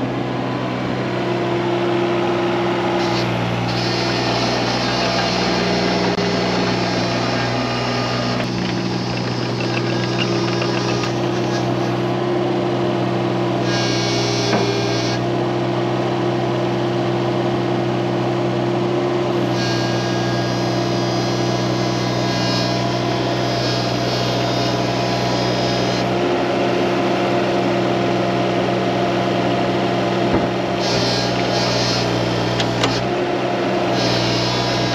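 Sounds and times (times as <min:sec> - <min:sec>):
excavator diesel engine running: 0:00.0 - 0:16.5, 0:19.3 - 0:34.9
high hydraulic whine: 0:02.8 - 0:12.2, 0:13.6 - 0:15.2, 0:30.2 - 0:33.1.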